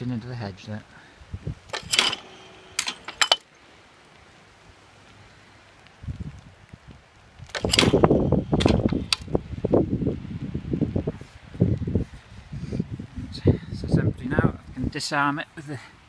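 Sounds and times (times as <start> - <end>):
mechanical clicks and clacks: 1.7 - 3.4, 7.5 - 9.3
rustling and handling noise: 1.7 - 3.5.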